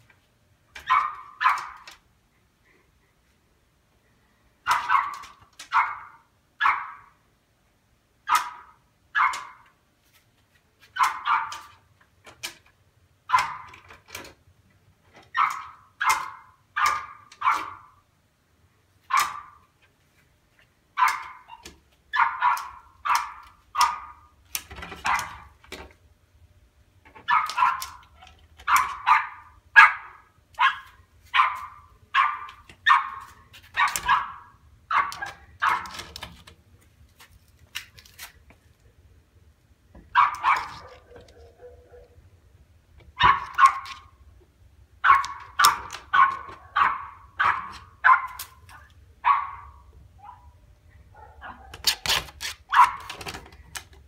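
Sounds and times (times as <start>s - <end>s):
dog barking: 0.8s - 1.9s, 4.6s - 7.2s, 8.3s - 9.6s, 11.0s - 11.7s, 13.3s - 13.7s, 15.4s - 18.0s, 19.1s - 19.6s, 21.0s - 24.3s, 25.0s - 25.5s, 27.2s - 28.0s, 28.6s - 35.9s, 40.1s - 42.2s, 43.2s - 44.1s, 45.0s - 48.6s, 49.2s - 51.8s, 52.7s - 53.2s.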